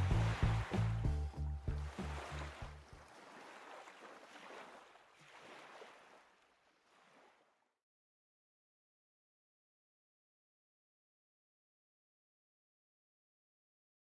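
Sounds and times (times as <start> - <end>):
low bass notes: 0.0 - 2.8.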